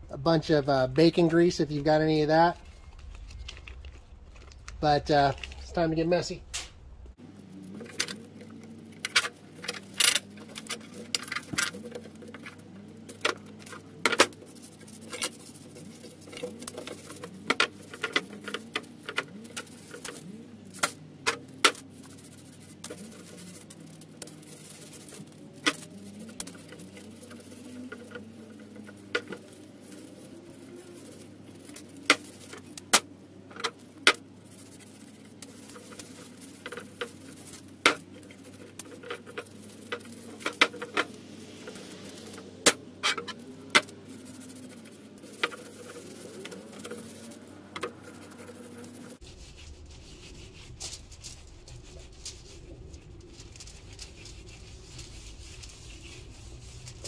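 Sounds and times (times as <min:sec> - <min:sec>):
foil rustling: 0:00.1 - 0:06.4, 0:07.1 - 0:57.0
grill grate clicking and knocking: 0:07.8 - 0:49.2.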